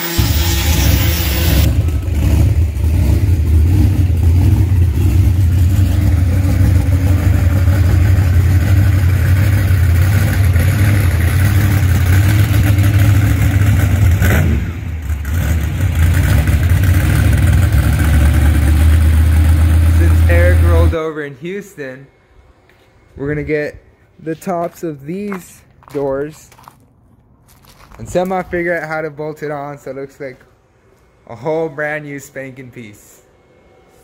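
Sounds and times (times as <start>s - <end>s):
monster truck engine rumbling: 0.1s - 21.0s.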